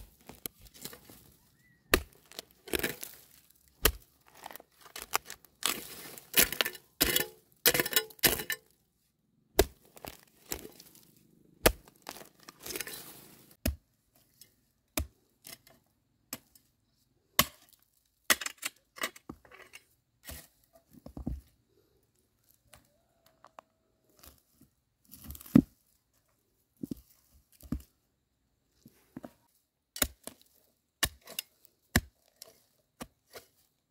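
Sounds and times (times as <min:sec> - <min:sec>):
hoe chopping dry earth: 0:01.9 - 0:03.2, 0:03.8 - 0:04.1, 0:05.0 - 0:08.5, 0:09.6 - 0:10.9, 0:11.6 - 0:13.0, 0:30.0 - 0:33.6.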